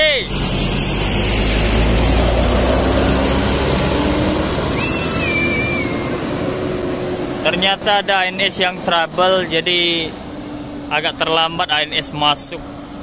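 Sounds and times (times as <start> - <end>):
bus engine passing by: 0.0 - 13.0.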